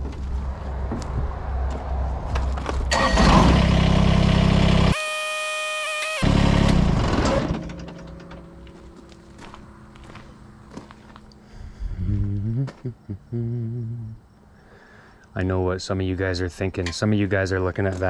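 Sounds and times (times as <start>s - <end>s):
tractor diesel engine running: 0.0s - 5.0s, 6.2s - 11.4s.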